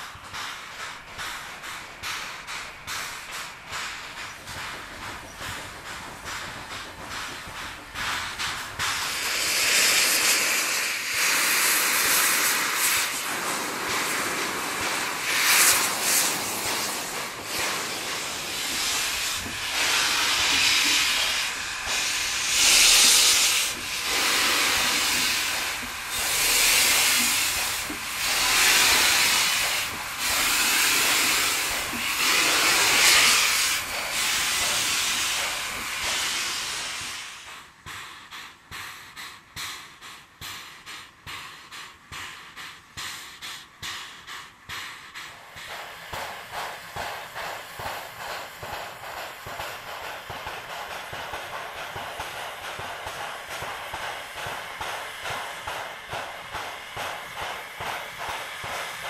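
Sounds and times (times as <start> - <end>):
steam locomotive hissing steam: 0.0 - 59.0.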